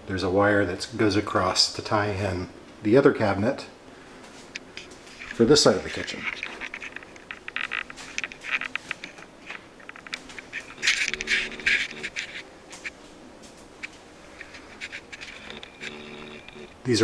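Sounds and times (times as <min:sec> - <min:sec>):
camera handling noise: 0:04.8 - 0:13.0, 0:13.8 - 0:16.8.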